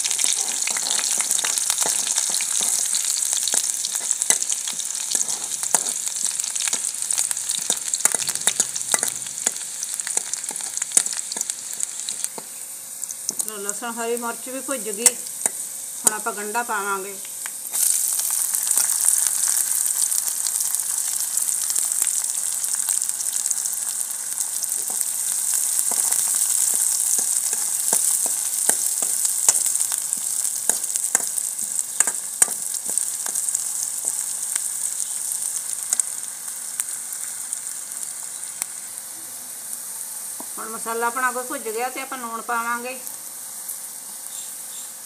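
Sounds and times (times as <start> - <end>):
onion sizzling in hot oil: 0.0 - 45.0
steel ladle scraping a pan: 3.6 - 6.0.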